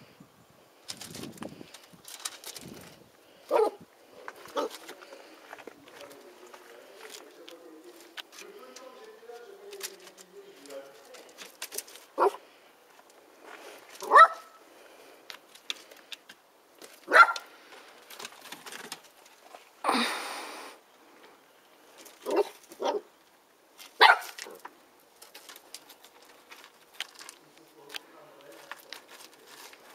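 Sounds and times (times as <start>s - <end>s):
puppy barking: 3.5s - 3.8s, 12.2s - 12.4s, 14.0s - 14.6s, 17.1s - 17.5s, 22.2s - 23.1s, 24.0s - 24.4s.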